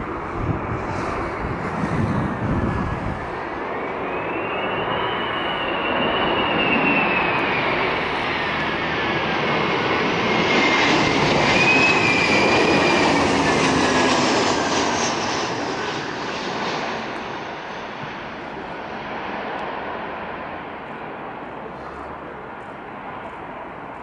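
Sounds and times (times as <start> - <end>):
high fan whine: 0.0 - 3.5
jet engines passing: 0.0 - 24.0.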